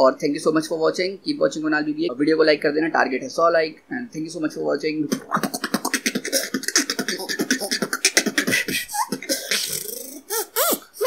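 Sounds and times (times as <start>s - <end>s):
hissing beatbox sound: 5.1s - 11.0s
person beatboxing: 5.1s - 11.0s.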